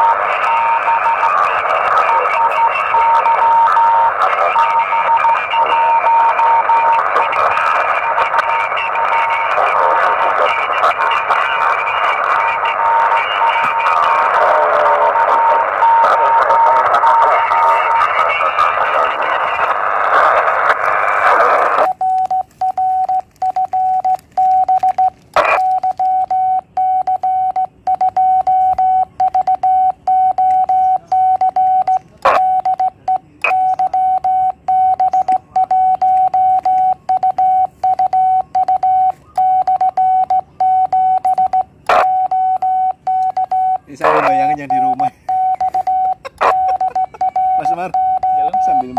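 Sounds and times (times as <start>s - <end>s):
radio hiss and band noise: 0.0s - 26.2s, 31.9s - 34.2s, 41.2s - 48.9s
morse code beeps: 0.0s - 48.9s.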